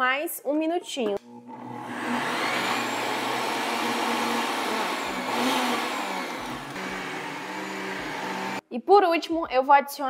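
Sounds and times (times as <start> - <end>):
blender whirring: 1.2 - 8.6.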